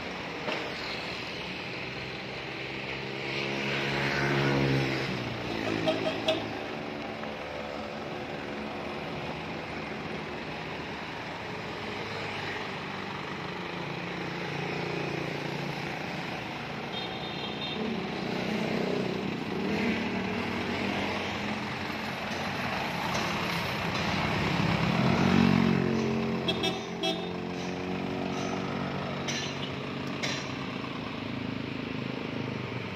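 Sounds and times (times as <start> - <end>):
truck engine running: 5.9 - 16.9, 17.9 - 32.3.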